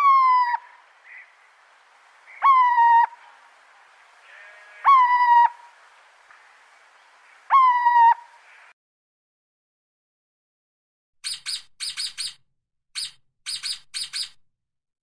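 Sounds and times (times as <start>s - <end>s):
owl calling: 0.0s - 8.7s, 11.2s - 12.4s, 13.0s - 14.4s.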